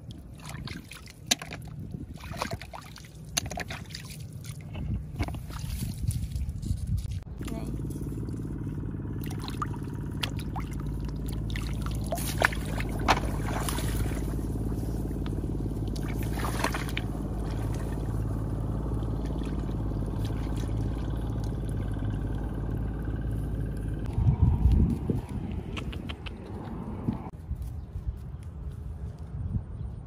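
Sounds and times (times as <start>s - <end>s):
sharp splashes: 0.0s - 6.0s, 9.1s - 22.6s
water splashing and trickling: 0.0s - 24.2s
low engine-like drone: 2.9s - 27.4s.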